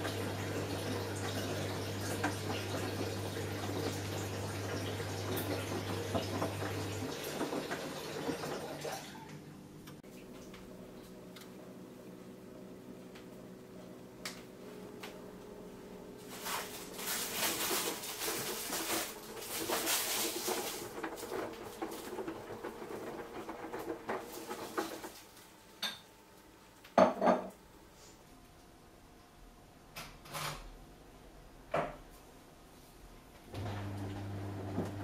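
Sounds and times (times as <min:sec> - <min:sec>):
washing machine motor hum: 0:00.0 - 0:25.7, 0:33.5 - 0:35.0
water sloshing and clattering: 0:00.8 - 0:09.1, 0:16.3 - 0:25.4.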